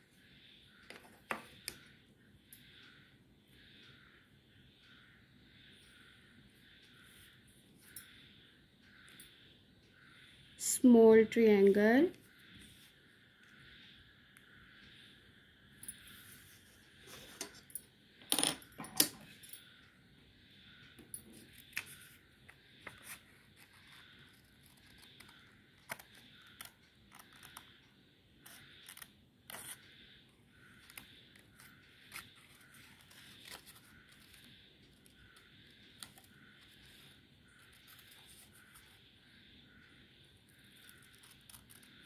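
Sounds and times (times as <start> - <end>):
scissors snipping paper: 22.9 - 27.7, 40.8 - 42.0.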